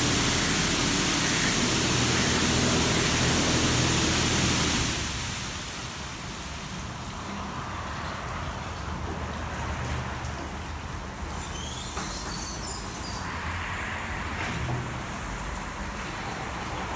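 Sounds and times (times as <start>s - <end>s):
high-pressure water spray: 0.0s - 7.2s
low pump hum: 0.0s - 7.7s.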